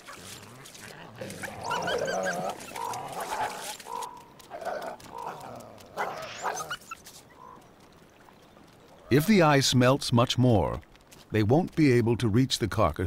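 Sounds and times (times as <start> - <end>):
wild canids whining and yipping: 0.0 - 9.5.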